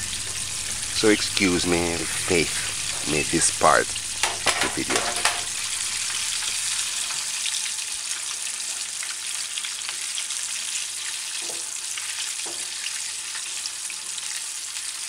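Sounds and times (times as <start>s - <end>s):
chicken sizzling in hot oil: 0.0s - 15.0s.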